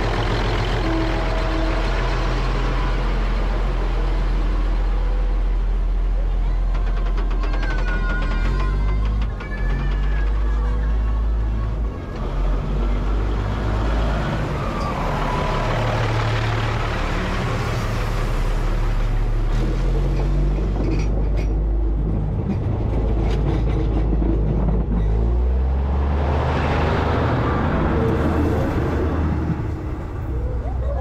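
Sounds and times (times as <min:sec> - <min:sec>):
train wheels on rails: 0:00.0 - 0:17.7, 0:19.5 - 0:26.1.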